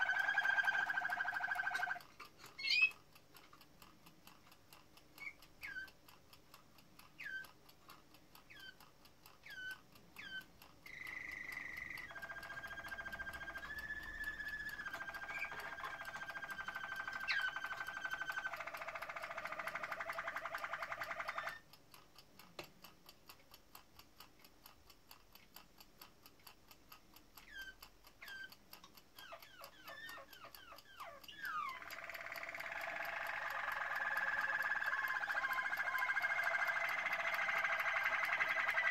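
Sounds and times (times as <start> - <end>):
canaries chirping: 0.0 - 3.0, 5.2 - 5.9, 7.2 - 7.5, 8.5 - 8.8, 9.4 - 21.6, 29.2 - 38.9
canary song with trills: 0.0 - 21.7, 27.1 - 38.9
fast steady ticking: 0.0 - 38.9.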